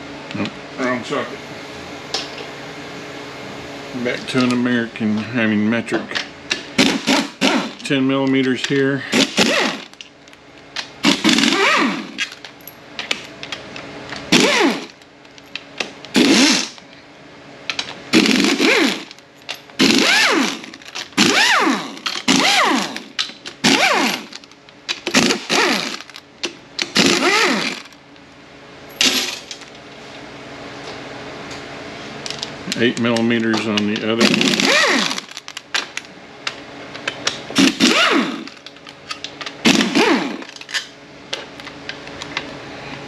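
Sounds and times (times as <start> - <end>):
pneumatic air wrench spinning: 6.8 - 7.8, 9.1 - 10.0, 11.0 - 12.4, 14.3 - 15.0, 16.1 - 16.8, 18.1 - 19.2, 19.8 - 26.2, 26.8 - 28.0, 29.0 - 29.6, 34.2 - 35.5, 37.6 - 38.7, 39.6 - 40.9.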